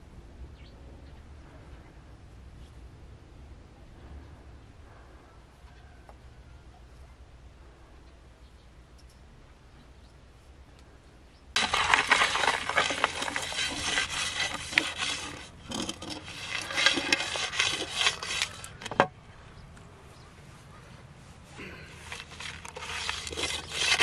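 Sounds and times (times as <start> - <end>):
gravel scraped in metal pan: 11.6 - 19.1, 21.7 - 24.0.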